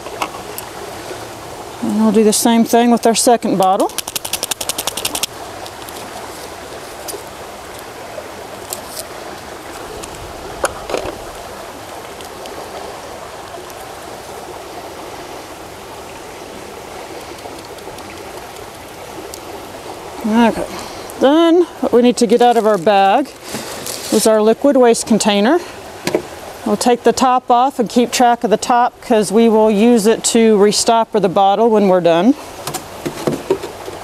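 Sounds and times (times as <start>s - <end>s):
creek water running: 0.0s - 34.0s
rattle of light clicks: 3.9s - 6.0s.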